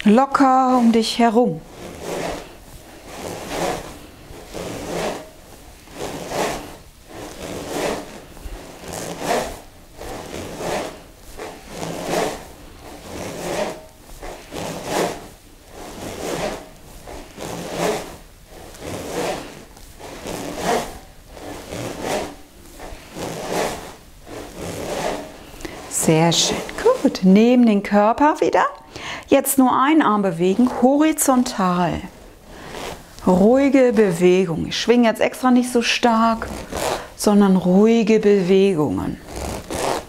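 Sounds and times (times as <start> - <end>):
balls rolling in swung rings: 0.3 - 27.4.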